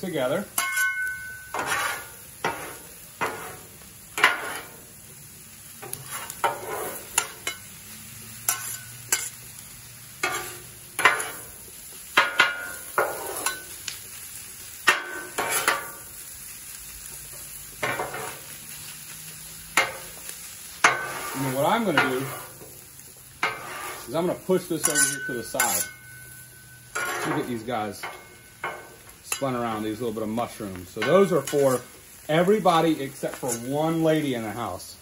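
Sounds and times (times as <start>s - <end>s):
food sizzling: 0.0s - 35.0s
spatula scraping metal griddle: 0.2s - 4.9s, 5.8s - 7.6s, 8.4s - 9.5s, 10.2s - 11.6s, 12.2s - 13.8s, 14.9s - 16.1s, 17.8s - 18.6s, 19.7s - 22.8s, 23.4s - 30.3s, 31.0s - 34.5s.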